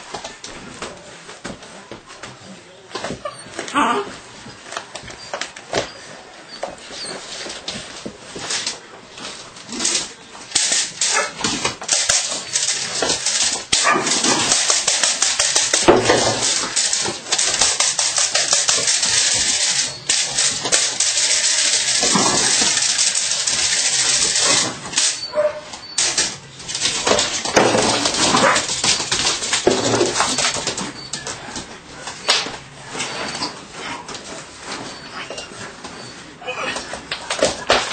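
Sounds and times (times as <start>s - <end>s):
puppy barking: 13.8s - 14.2s, 25.2s - 25.9s, 28.3s - 28.8s.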